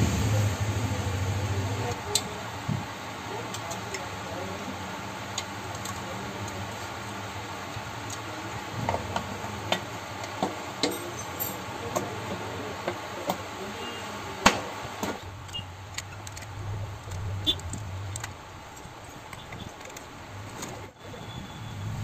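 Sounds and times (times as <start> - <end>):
small metallic clicks and taps: 15.4 - 20.8.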